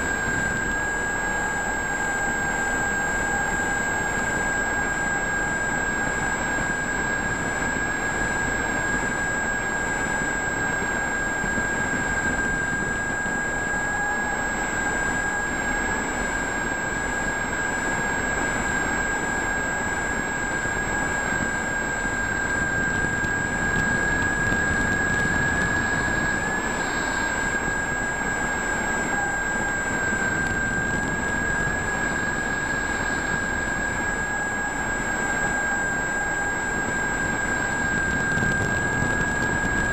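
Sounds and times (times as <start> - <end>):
electric motor and propeller whine: 0.0 - 39.9.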